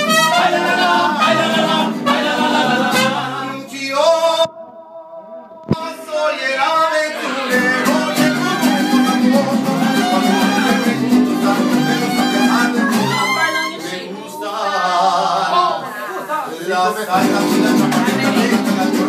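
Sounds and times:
strummed guitar: 0.0 - 3.6, 7.2 - 14.0, 17.1 - 19.0.

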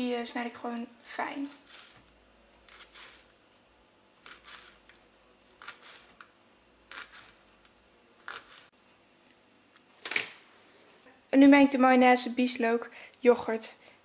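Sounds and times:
knife cutting on cutting board: 1.4 - 2.0, 2.6 - 3.3, 4.2 - 6.2, 6.8 - 7.4, 8.2 - 8.7.

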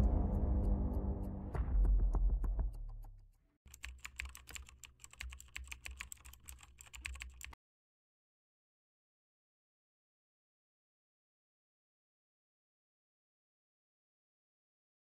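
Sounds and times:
intro music: 0.0 - 2.8
keyboard typing clicks: 3.7 - 7.6.

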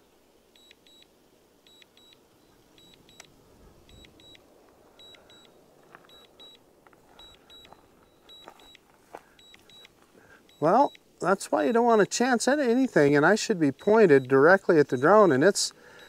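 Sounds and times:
high-pitched double beeps: 13.6 - 15.4.

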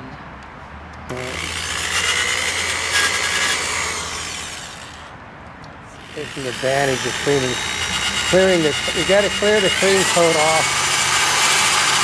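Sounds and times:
electric drill motor hum: 1.1 - 5.1, 6.0 - 12.0
sanding disc rasping on metal: 6.1 - 12.0.

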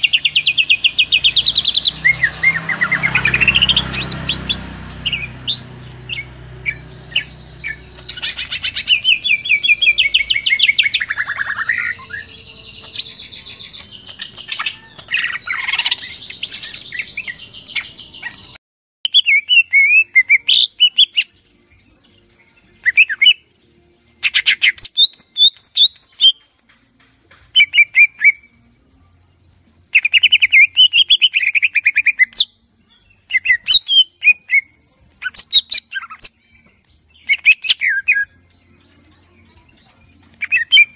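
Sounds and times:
bird singing chirps and trills: 0.0 - 40.9.

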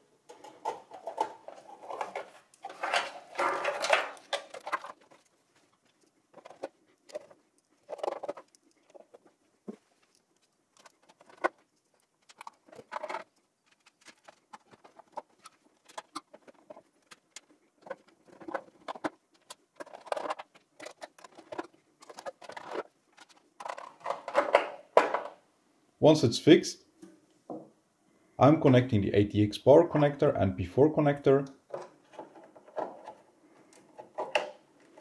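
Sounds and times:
metal and plastic parts clicking: 0.3 - 9.3, 10.0 - 25.4.

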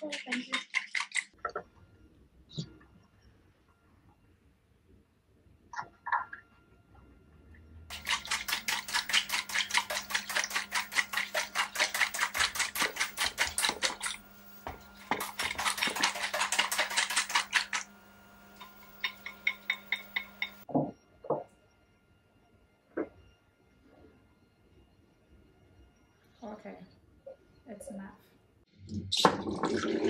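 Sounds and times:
steady low hum: 6.6 - 28.9
sugar rattling in container: 7.9 - 20.6.

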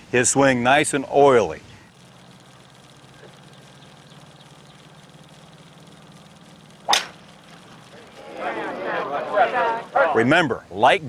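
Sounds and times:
film soundtrack hum and hiss: 0.0 - 11.0
golf club striking ball: 2.2 - 8.6.

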